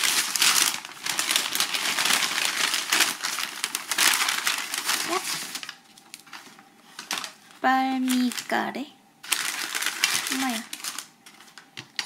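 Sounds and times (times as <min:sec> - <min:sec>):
paper bag crinkling: 0:00.0 - 0:11.6.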